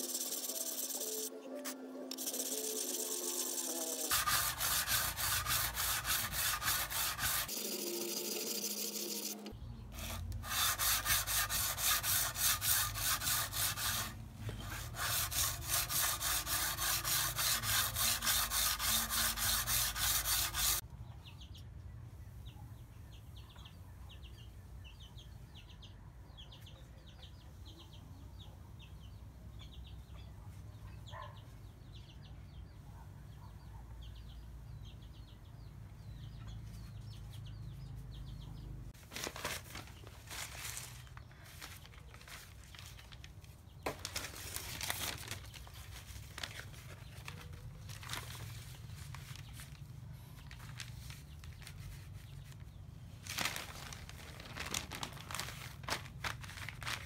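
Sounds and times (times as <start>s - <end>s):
blade scraping on a whetstone: 0.0s - 1.3s, 2.1s - 20.8s.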